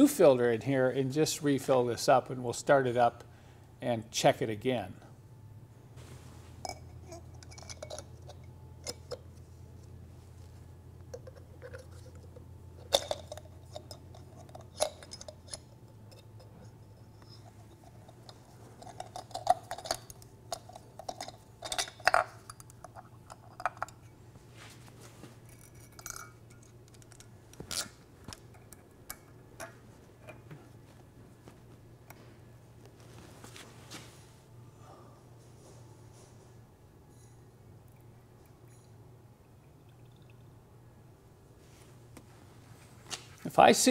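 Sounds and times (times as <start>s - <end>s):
faint low hum: 0.0s - 43.9s
small metallic clicks and clinks: 11.1s - 24.1s, 37.1s - 39.0s.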